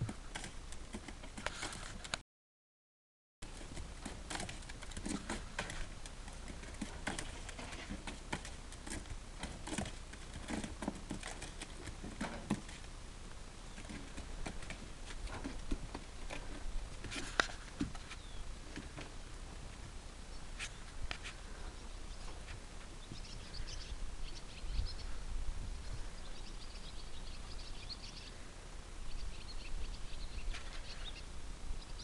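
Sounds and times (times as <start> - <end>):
low steady rumble: 3.4 - 32.0
taps and rustling on dry straw: 13.8 - 19.2.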